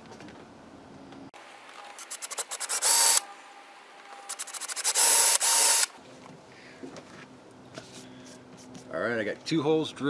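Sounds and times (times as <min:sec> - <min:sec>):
cordless drill whining: 0:02.0 - 0:03.2, 0:04.3 - 0:05.9.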